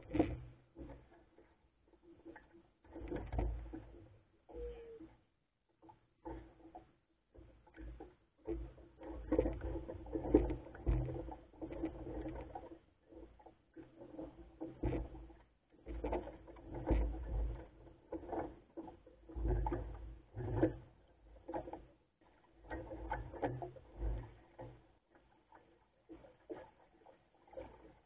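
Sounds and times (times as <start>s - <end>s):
water slapping against boat hull: 6.2s - 28.0s
dull knocks of hull: 7.8s - 12.8s.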